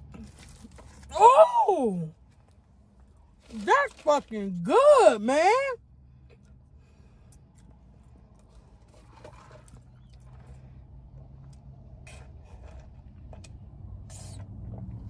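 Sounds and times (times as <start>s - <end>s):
low steady hum: 0.0s - 15.0s
sipping through a straw: 14.0s - 14.8s.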